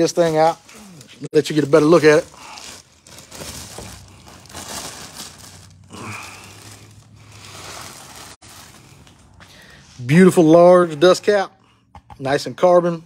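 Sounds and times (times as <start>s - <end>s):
plastic wrapping crinkling: 0.0s - 9.4s.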